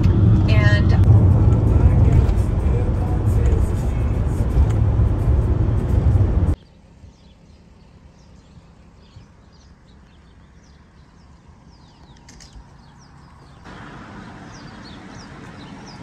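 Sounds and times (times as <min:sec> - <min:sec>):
low background rumble: 0:00.0 - 0:12.2
small birds chirping: 0:06.5 - 0:16.0.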